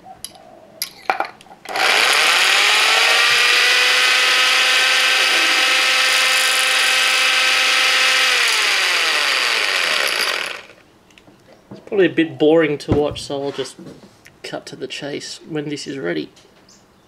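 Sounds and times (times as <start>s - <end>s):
electric drill whining: 1.7s - 10.8s.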